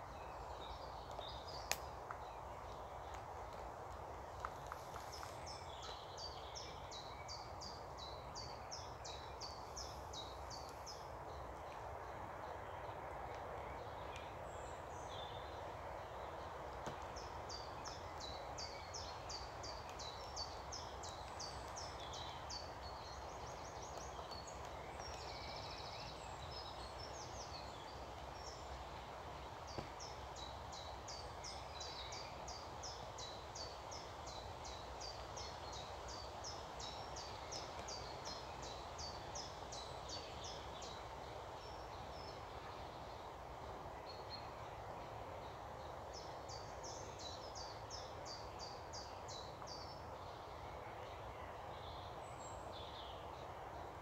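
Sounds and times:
outdoor background rush: 0:00.0 - 0:54.0
songbirds singing: 0:00.0 - 0:54.0.

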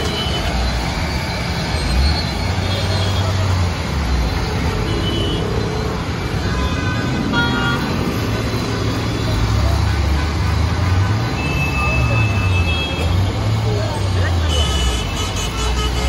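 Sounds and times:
vehicle engines humming: 0:00.0 - 0:16.0
faint voices: 0:06.0 - 0:16.0.

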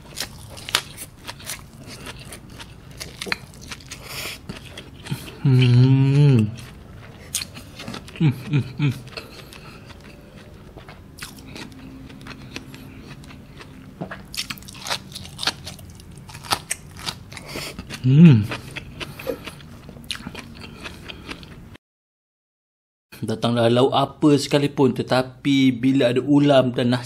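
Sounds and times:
crunching and chewing: 0:00.0 - 0:21.6
person humming: 0:05.3 - 0:06.6, 0:18.0 - 0:18.5.

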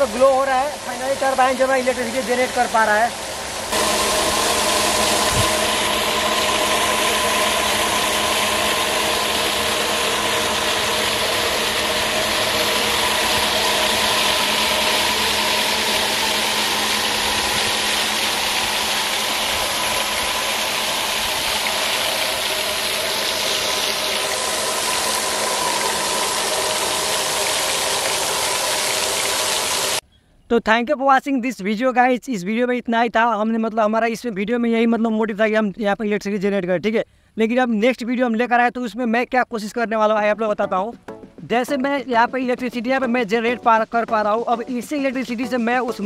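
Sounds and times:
water jet hissing and splashing: 0:00.0 - 0:30.0
mechanical hum of turbine: 0:00.8 - 0:30.0.

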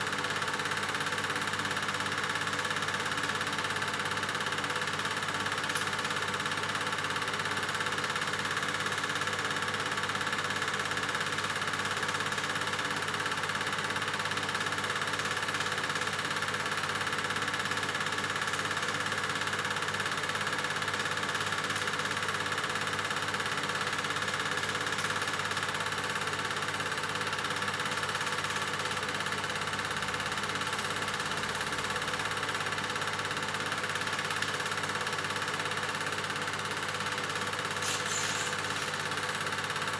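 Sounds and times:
film projector running: 0:00.0 - 0:39.9.

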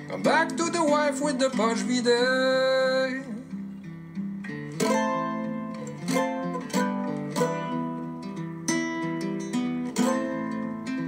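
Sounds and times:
person singing folk song: 0:00.0 - 0:03.9, 0:04.5 - 0:08.6
acoustic guitar strumming: 0:00.0 - 0:11.0.

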